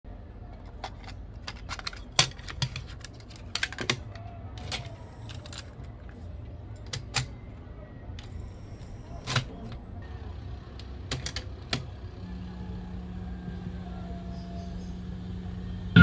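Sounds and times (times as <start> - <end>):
plastic cassette clicks and taps: 0.6 - 6.2
cassette loading mechanism whine: 6.8 - 16.0.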